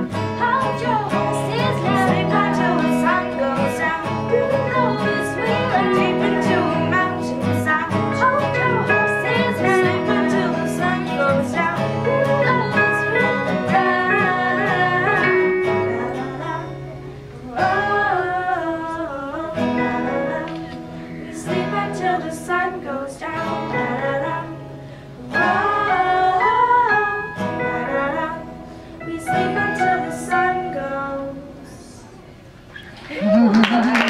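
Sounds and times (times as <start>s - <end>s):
electric keyboard: 0.0s - 18.4s
acoustic guitars strummed: 0.0s - 31.8s
girls singing: 0.0s - 32.2s.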